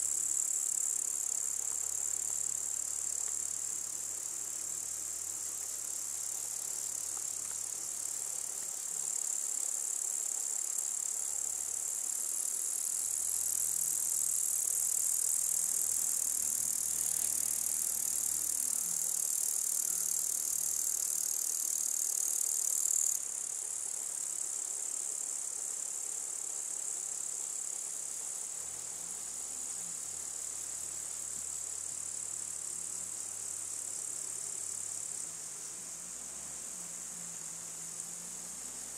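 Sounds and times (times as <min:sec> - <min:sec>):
insect chorus shrilling: 0:16.9 - 0:24.0.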